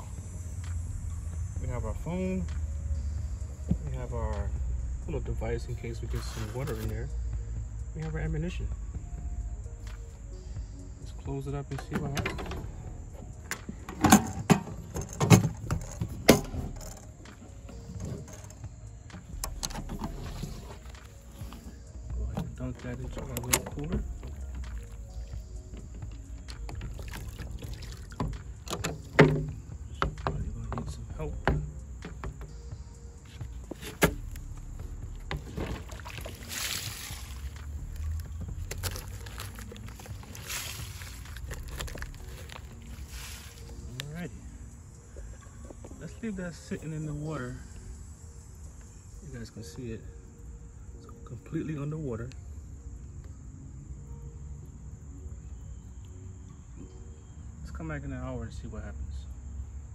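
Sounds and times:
water sloshing in a cooler: 11.8 - 32.5, 33.5 - 44.0
metal ammo can clanking shut: 13.9 - 17.0.

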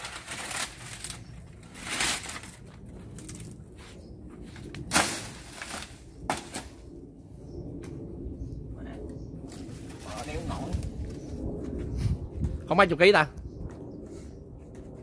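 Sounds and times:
rustling of dry leaves: 0.0 - 6.8, 9.5 - 11.4.

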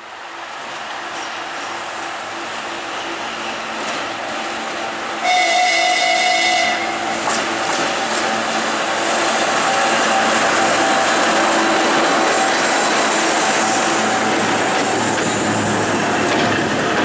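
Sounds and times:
diesel locomotive engine running: 0.4 - 17.0
locomotive whistle: 5.2 - 7.2.

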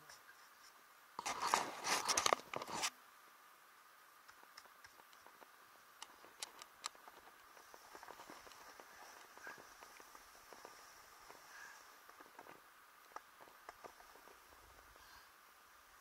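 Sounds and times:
small clicks: 4.2 - 14.9.

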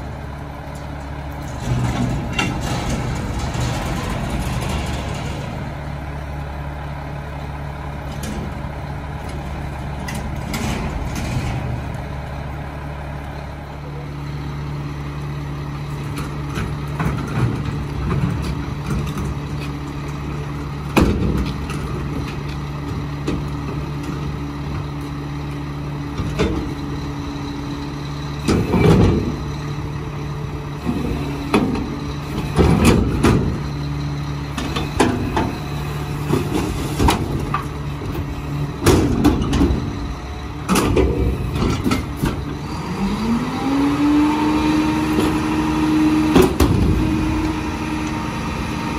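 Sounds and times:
garbage truck running: 0.0 - 48.9
loud bangs and clanks: 1.5 - 6.0, 30.8 - 33.8, 34.5 - 42.5.

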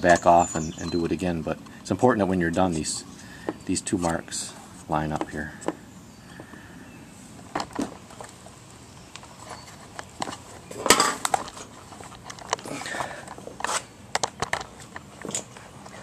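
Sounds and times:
handling knocks and clicks: 5.1 - 5.8, 7.5 - 8.4, 9.1 - 16.0.

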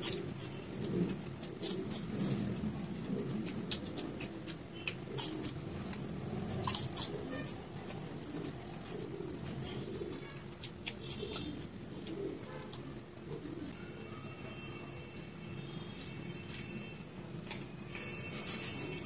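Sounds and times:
fingers mixing rice on a plate: 0.0 - 13.2.

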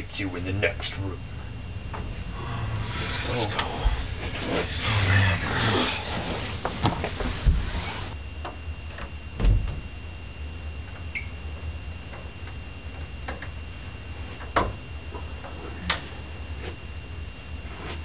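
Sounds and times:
steady low hum: 0.0 - 18.0
footsteps: 2.8 - 8.2.

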